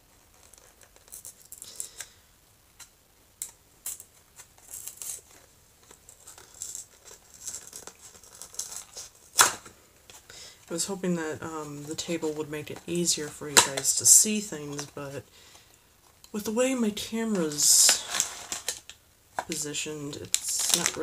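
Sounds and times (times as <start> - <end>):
plastic wrapping crinkling: 0.0 - 2.2, 2.8 - 16.4, 17.3 - 21.0.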